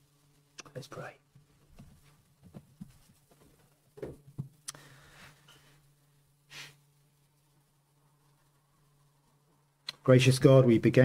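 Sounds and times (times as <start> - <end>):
soft knocks and rustles: 1.4 - 4.6.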